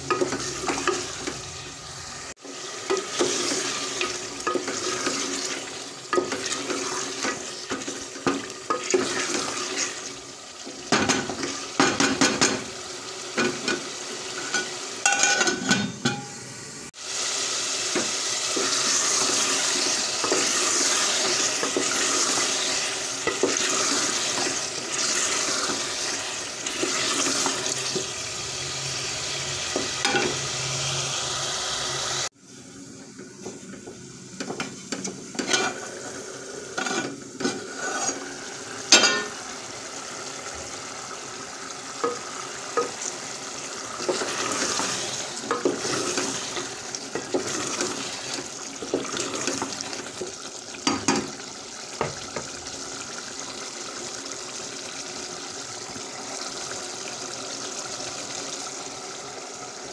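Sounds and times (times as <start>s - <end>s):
curry sizzling in a pot: 0.0s - 59.9s
spoon scraping and knocking pot: 13.4s - 16.3s, 34.4s - 35.8s, 36.8s - 38.3s.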